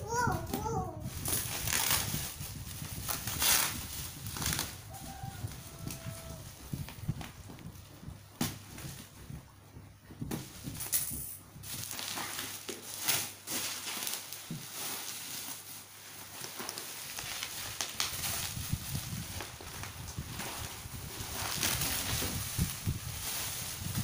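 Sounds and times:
sharp crackles: 1.1 - 9.5, 10.2 - 24.0
plastic wrap crinkling: 1.1 - 24.0.

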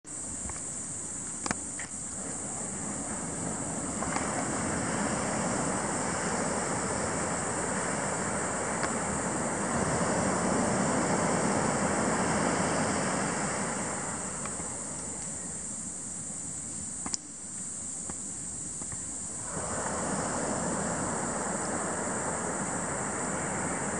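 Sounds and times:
ocean surf: 1.4 - 16.6, 19.2 - 23.9
wind on microphone: 2.1 - 15.6, 18.9 - 23.9
sharp click: 17.0 - 18.2.

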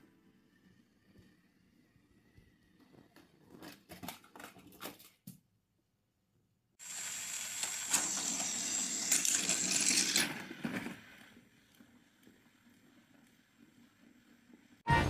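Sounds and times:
plastic toy trains clattering: 7.5 - 11.8.

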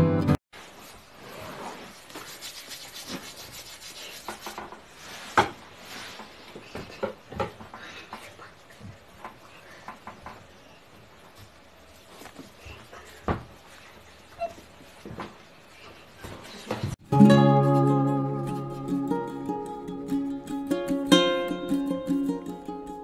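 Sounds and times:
soft rubbing and scraping: 0.6 - 6.6.

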